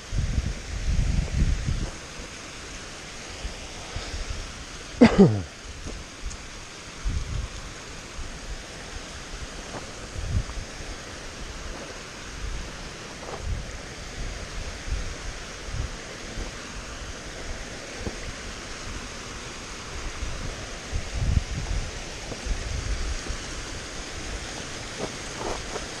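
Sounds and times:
wind buffeting microphone: 0.0 - 2.2, 5.8 - 8.6, 9.2 - 19.2, 19.8 - 26.0
mountain stream rushing: 0.0 - 26.0.

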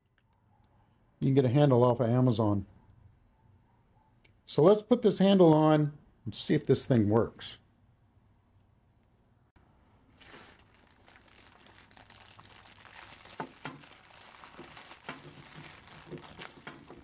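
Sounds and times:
plastic bag crinkling: 10.0 - 17.0.

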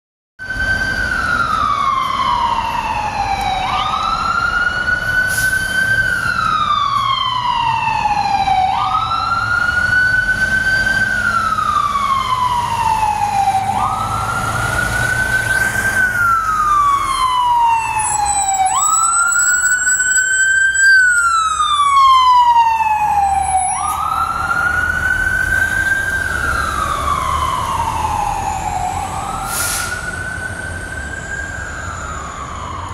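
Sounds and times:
faint second siren: 0.4 - 32.9
fire engine siren wailing: 0.4 - 32.9
truck engine rumble: 0.6 - 32.9.

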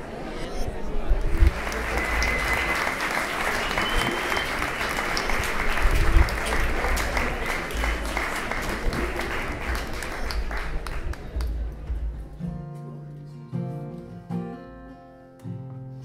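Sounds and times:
audience applause: 1.2 - 11.8
acoustic guitar picking: 12.4 - 16.0.

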